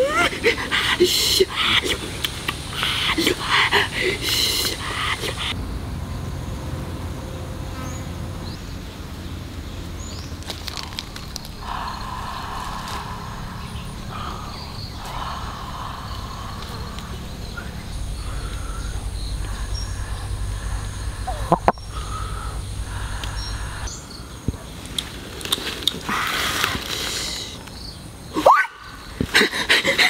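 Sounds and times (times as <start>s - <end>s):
low background rumble: 0.0s - 26.2s
insects buzzing: 0.0s - 30.0s.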